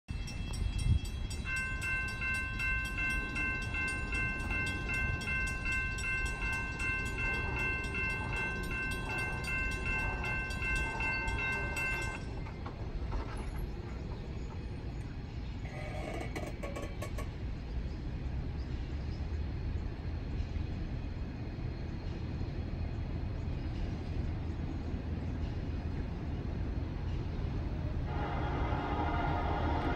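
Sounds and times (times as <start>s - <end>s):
crossing warning bell ringing: 0.1s - 13.7s.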